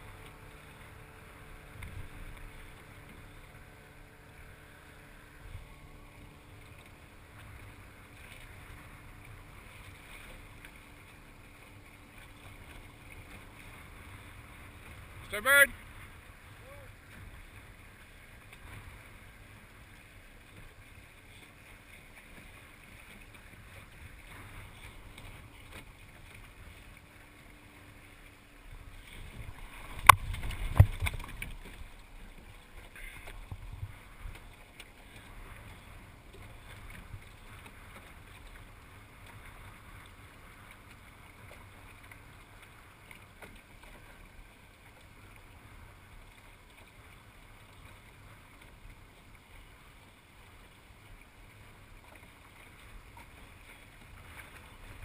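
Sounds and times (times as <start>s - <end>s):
water noise: 0.0s - 55.0s
wind: 0.0s - 55.0s
sail rustling: 19.8s - 39.8s.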